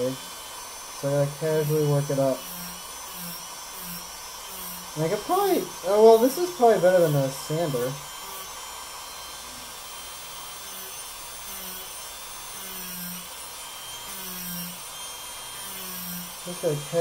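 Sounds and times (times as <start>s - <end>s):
rotary tool sanding foam: 0.0s - 17.0s.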